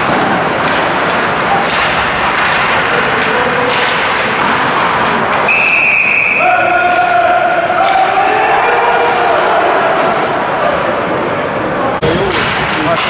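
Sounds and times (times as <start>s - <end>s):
sticks and puck knocking: 0.0s - 5.5s, 12.0s - 13.0s
skates scraping ice: 0.0s - 11.6s
spectators' voices: 0.0s - 13.0s
referee's whistle: 5.5s - 6.6s.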